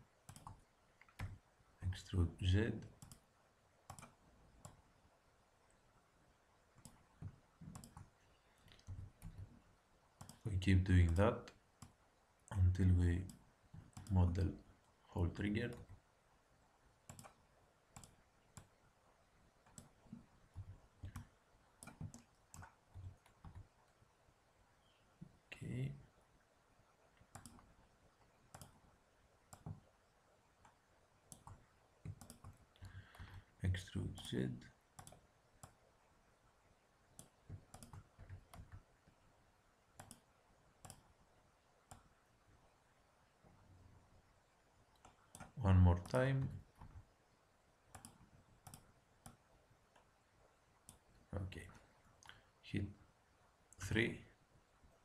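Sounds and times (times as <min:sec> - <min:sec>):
keyboard and mouse clicking: 0:00.2 - 0:01.4, 0:03.0 - 0:03.3, 0:03.9 - 0:04.8, 0:06.8 - 0:08.1, 0:10.2 - 0:10.4, 0:13.2 - 0:14.2, 0:17.1 - 0:17.4, 0:18.0 - 0:18.7, 0:19.6 - 0:23.7, 0:27.2 - 0:27.7, 0:28.5 - 0:28.8, 0:29.5 - 0:29.8, 0:30.6 - 0:33.4, 0:35.0 - 0:35.8, 0:37.2 - 0:38.8, 0:40.0 - 0:41.1, 0:44.9 - 0:47.0, 0:47.9 - 0:50.1.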